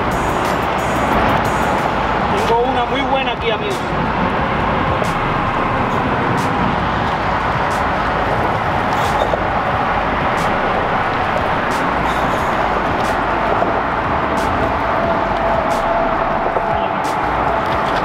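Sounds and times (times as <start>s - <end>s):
road traffic tyre hum: 0.0s - 18.0s.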